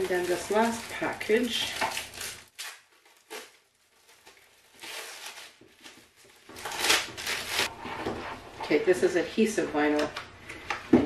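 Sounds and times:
plastic packaging rustling: 0:00.0 - 0:07.7.

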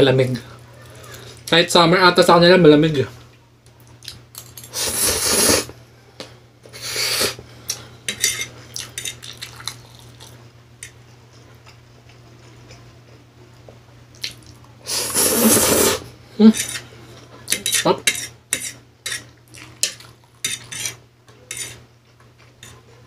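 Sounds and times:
noodle slurping: 0:04.8 - 0:05.7, 0:06.8 - 0:07.4, 0:14.9 - 0:16.1
fork scraping a plate: 0:08.1 - 0:09.2, 0:14.9 - 0:23.0.

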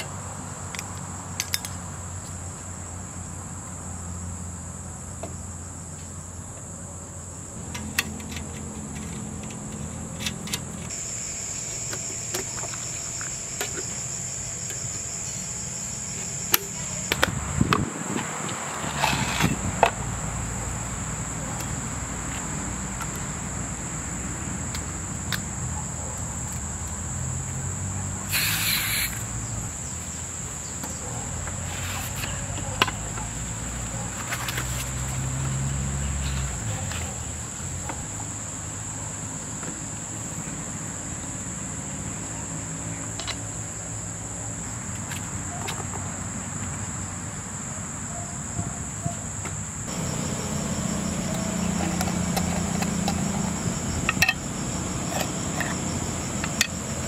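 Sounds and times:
insects chirring: 0:00.0 - 0:57.0
rustle: 0:07.7 - 0:20.8, 0:28.0 - 0:38.4.

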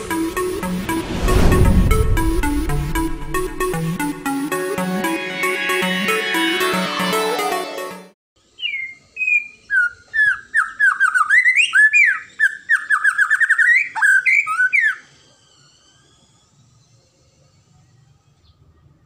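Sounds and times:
electronic intro music: 0:00.0 - 0:08.2
bird singing whistled notes: 0:08.6 - 0:15.0.

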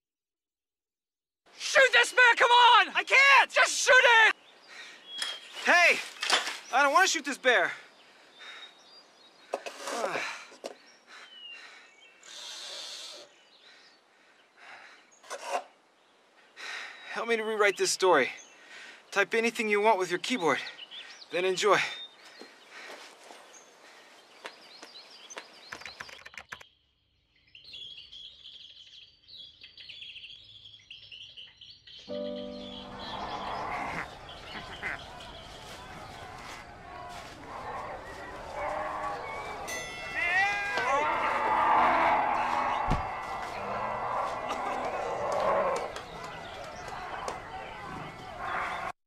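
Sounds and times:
birds chirping and singing: 0:01.6 - 0:26.6, 0:27.3 - 0:48.9
falling vocal cry: 0:36.6 - 0:46.0.

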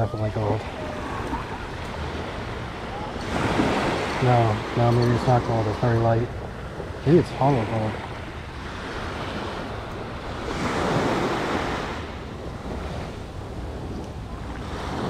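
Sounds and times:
ocean surf washing on beach: 0:00.0 - 0:15.0
wind on microphone: 0:00.0 - 0:15.0.

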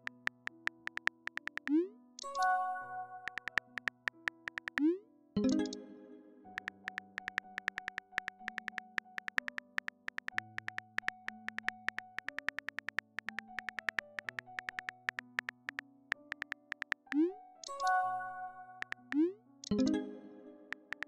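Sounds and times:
phone keyboard clicks: 0:00.0 - 0:02.4, 0:03.3 - 0:04.9, 0:06.6 - 0:17.9, 0:18.8 - 0:19.8, 0:20.8 - 0:21.0
soft synthesizer music: 0:00.0 - 0:06.0.

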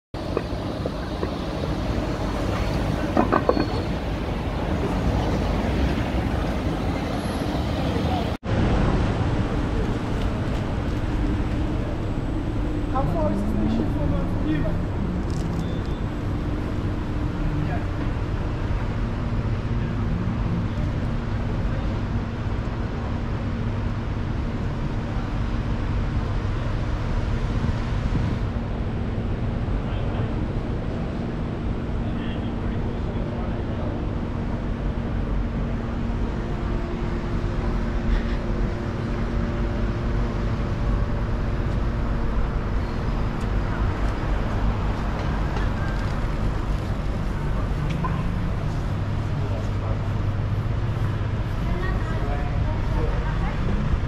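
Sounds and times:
constant low hum: 0:00.2 - 0:07.4, 0:08.0 - 0:54.0
low traffic rumble: 0:00.2 - 0:54.0
wind on microphone: 0:27.0 - 0:29.8.

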